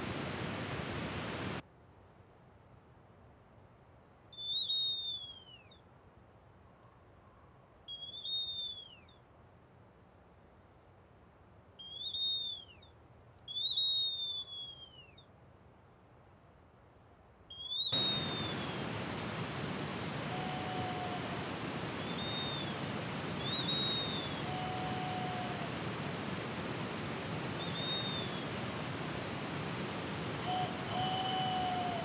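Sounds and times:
rushing water: 0:00.0 - 0:01.6, 0:17.9 - 0:32.0
wooden bird whistle calls: 0:04.4 - 0:05.8, 0:07.9 - 0:09.2, 0:11.8 - 0:12.9, 0:13.5 - 0:15.3, 0:17.5 - 0:18.9, 0:20.2 - 0:25.7, 0:27.6 - 0:28.6, 0:30.4 - 0:32.0.

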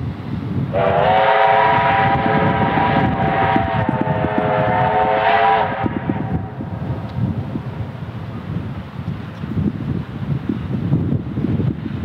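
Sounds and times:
steam locomotive whistle: 0:00.7 - 0:06.6.

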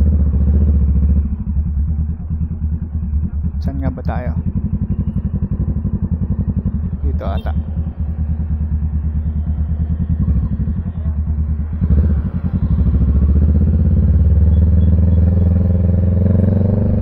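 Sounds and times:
motorcycle engine pulling away: 0:11.6 - 0:17.0.

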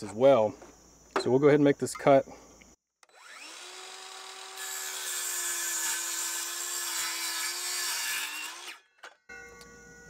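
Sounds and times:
circular saw motor whine: 0:03.0 - 0:04.8, 0:09.3 - 0:10.0
saw cutting through wood: 0:03.1 - 0:08.9.

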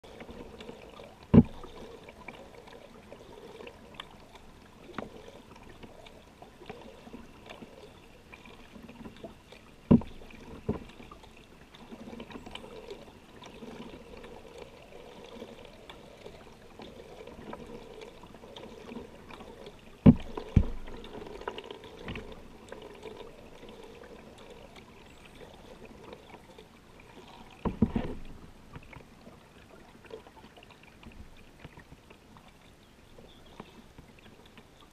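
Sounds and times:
water dripping off paddle: 0:00.1 - 0:34.9
knocks on boat: 0:01.3 - 0:01.6, 0:09.8 - 0:10.9, 0:20.0 - 0:21.0, 0:27.6 - 0:28.2.

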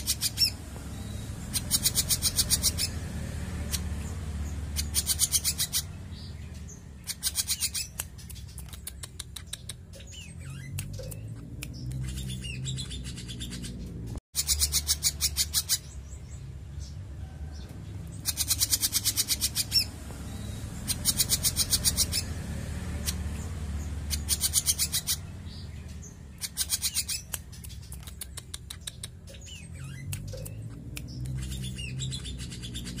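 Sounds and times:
songbird clicking calls: 0:00.0 - 0:03.0, 0:03.6 - 0:16.0, 0:18.2 - 0:22.3, 0:23.0 - 0:33.0.

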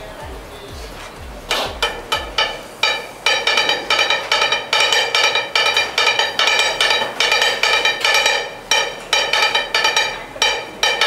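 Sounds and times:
metal spatulas clanging on griddle: 0:01.5 - 0:11.0.

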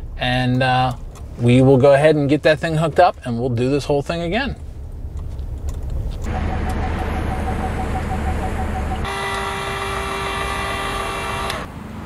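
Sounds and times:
road rumble inside truck cab: 0:00.0 - 0:12.0
steady pitched tone: 0:06.2 - 0:11.0.

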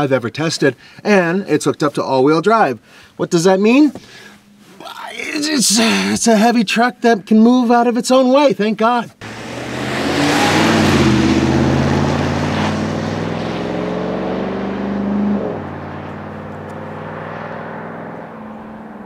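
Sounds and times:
truck engine accelerating: 0:09.2 - 0:19.0.

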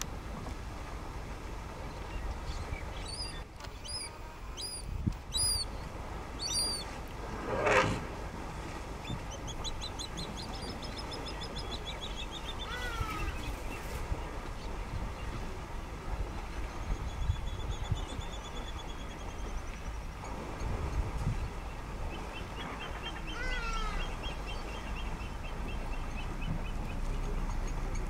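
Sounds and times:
wind rumble on microphone: 0:00.0 - 0:28.0
short whistled bird calls: 0:02.9 - 0:05.7, 0:06.4 - 0:06.9
harsh bird call: 0:06.4 - 0:06.9.

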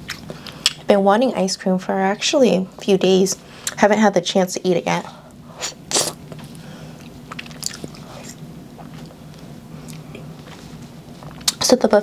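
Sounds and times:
steady low hum: 0:00.0 - 0:12.0
wet mouthfuls eating ice cream: 0:05.9 - 0:09.2.

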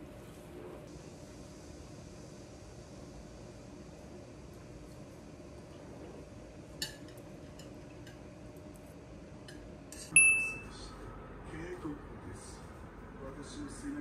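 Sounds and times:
sharp ringing clink: 0:10.1 - 0:10.7.

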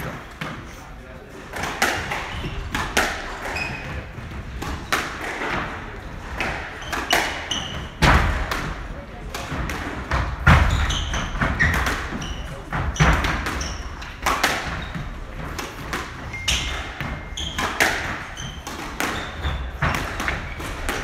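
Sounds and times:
squash ball hits: 0:01.5 - 0:21.0
shoes squeaking on wooden floor: 0:02.0 - 0:05.7, 0:06.4 - 0:08.1, 0:10.2 - 0:21.0.

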